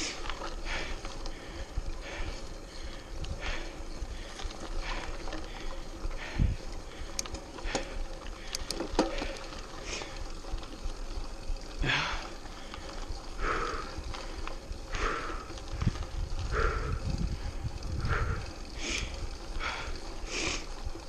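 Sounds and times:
bike tyre and trail noise: 0:00.0 - 0:21.0
rider breathing hard: 0:00.0 - 0:21.0
sharp rattling clicks: 0:06.7 - 0:09.6.

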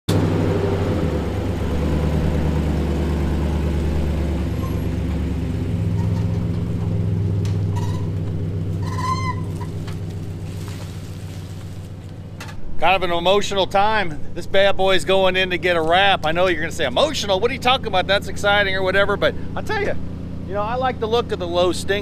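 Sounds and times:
truck engine running at low speed: 0:00.1 - 0:22.0
brief squeaks: 0:04.6 - 0:04.9, 0:07.6 - 0:08.2, 0:08.8 - 0:09.8.

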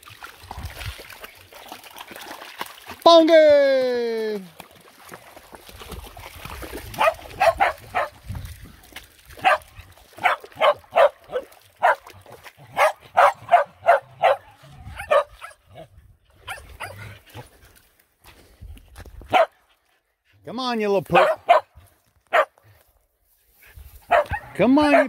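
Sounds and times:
dog yipping and barking: 0:07.0 - 0:08.1, 0:09.4 - 0:09.6, 0:10.2 - 0:12.0, 0:12.7 - 0:15.6, 0:16.4 - 0:17.0, 0:19.3 - 0:19.5, 0:21.2 - 0:21.7, 0:22.3 - 0:22.5, 0:24.1 - 0:25.0.

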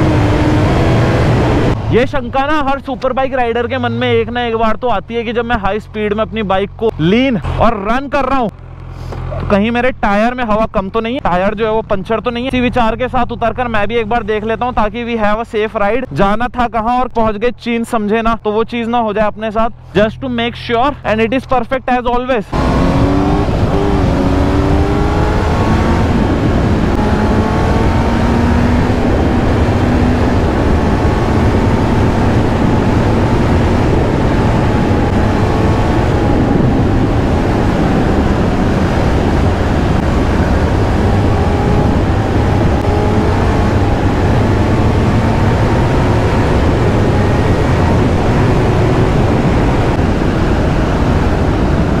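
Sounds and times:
motorcycle engine revving: 0:00.0 - 0:02.0, 0:22.5 - 0:52.0
wind noise rushing: 0:00.0 - 0:02.8, 0:22.6 - 0:52.0.

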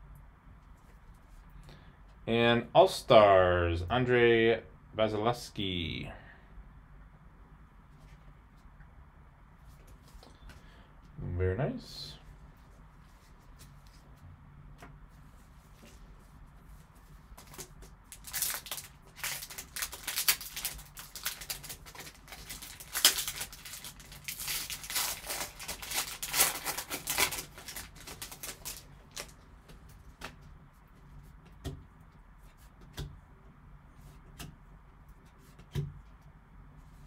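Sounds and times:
foil pack crinkling: 0:17.4 - 0:29.4.

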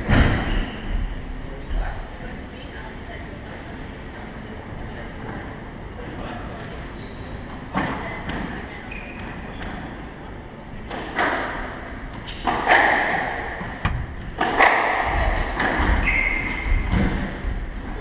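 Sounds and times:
squash racquet and wall hits: 0:10.9 - 0:17.6
shoes squeaking on wooden floor: 0:15.1 - 0:17.0.

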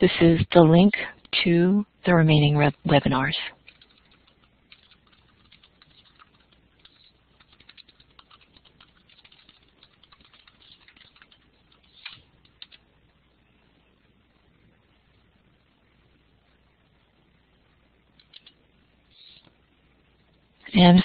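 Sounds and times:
typing on computer keyboard: 0:03.5 - 0:12.8, 0:18.2 - 0:18.6.

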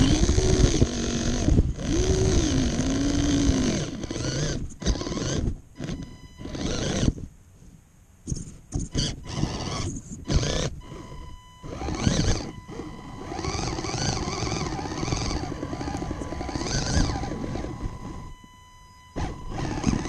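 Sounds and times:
electric motor and gears whining: 0:00.0 - 0:07.3, 0:08.8 - 0:20.0
thin steady high tone: 0:09.2 - 0:20.0.

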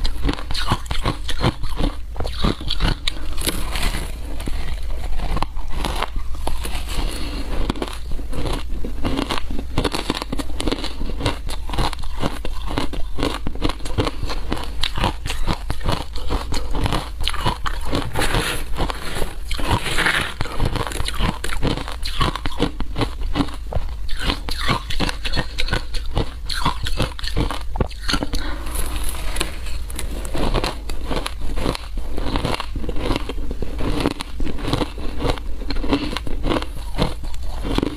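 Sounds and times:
chewing crunchy ice: 0:00.0 - 0:37.9
metal spoon scraping ice: 0:17.7 - 0:21.4.

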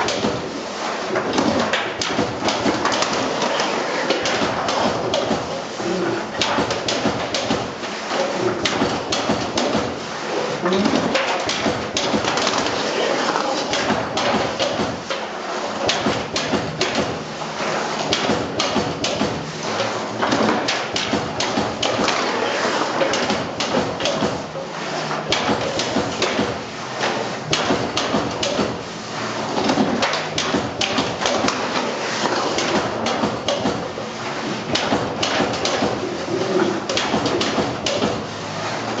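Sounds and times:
sharp metallic clacks of cutting machine: 0:36.9 - 0:38.2.

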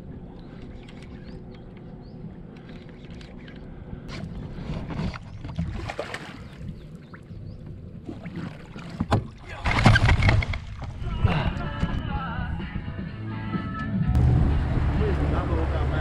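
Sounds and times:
fish splashing and thrashing: 0:00.4 - 0:07.3, 0:08.0 - 0:11.0.

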